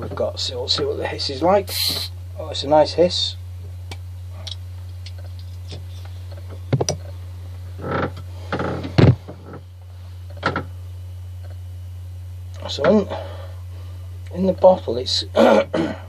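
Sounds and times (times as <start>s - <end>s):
person sniffing: 1.7s - 2.2s.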